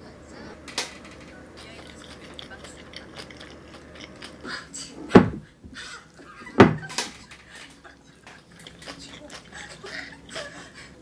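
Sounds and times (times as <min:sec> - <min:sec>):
chewing: 0:01.5 - 0:05.0, 0:07.5 - 0:10.7
deep thumps: 0:05.1 - 0:05.5, 0:06.6 - 0:06.9.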